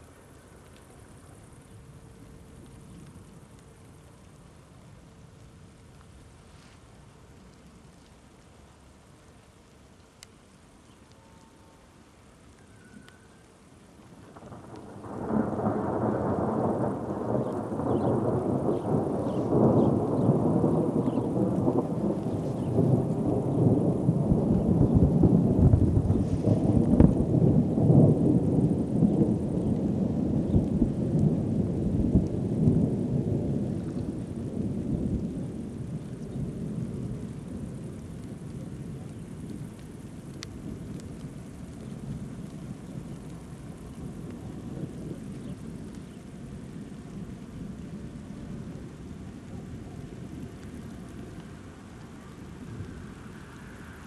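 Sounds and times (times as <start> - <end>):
rolling thunder: 14.2 - 51.6.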